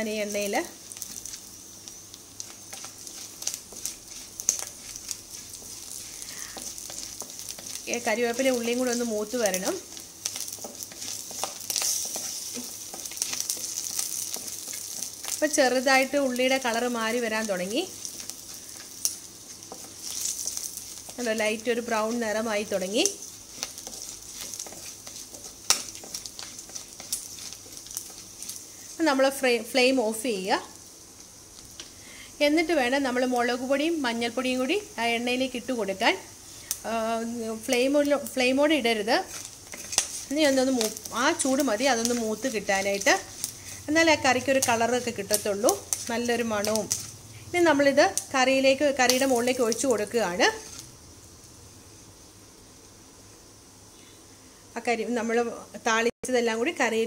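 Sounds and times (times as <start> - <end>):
leaves crackling and popping in oil: 0.0 - 53.0
shallots sizzling in oil: 0.0 - 57.0
wooden spatula stirring: 2.4 - 29.2, 38.8 - 47.2.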